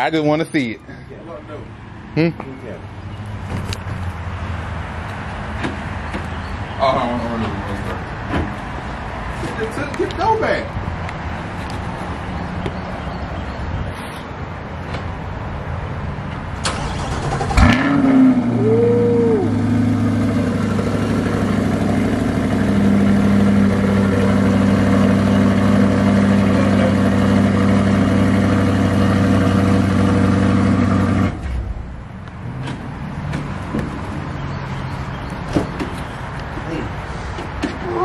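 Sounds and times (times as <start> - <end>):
car engine cranking: 16.6 - 18.4
car engine revving: 16.7 - 31.6
car engine idling: 18.4 - 31.4.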